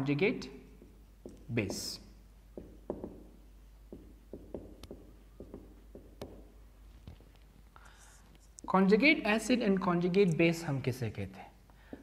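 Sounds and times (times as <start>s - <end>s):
marker pen writing on whiteboard: 0.7s - 7.3s.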